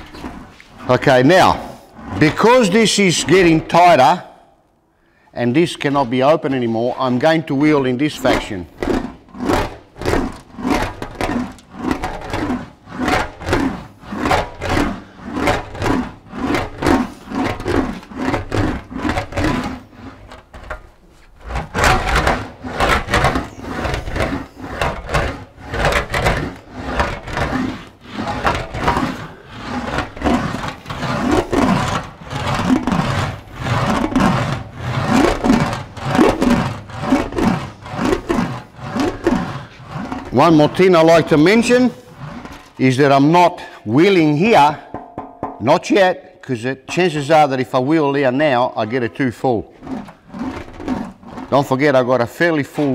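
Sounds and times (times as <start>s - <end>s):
english wheel rolling metal panel: 5.6s - 43.2s.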